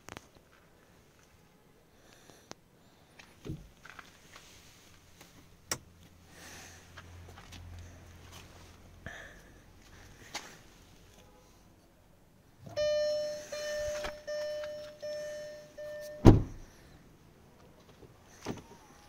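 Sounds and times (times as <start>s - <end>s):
car warning chime dinging: 12.7s - 16.6s
heavy thump: 16.2s - 16.6s.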